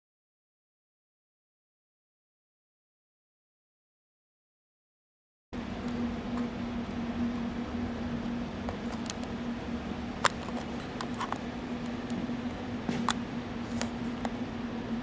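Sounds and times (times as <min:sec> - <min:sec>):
steady room hum: 0:05.6 - 0:15.0.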